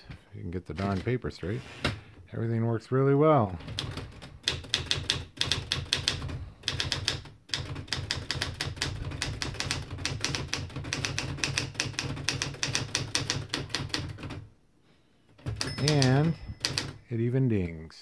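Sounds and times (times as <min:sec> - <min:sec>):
manual typewriter typing: 0:03.6 - 0:14.5, 0:15.4 - 0:17.0.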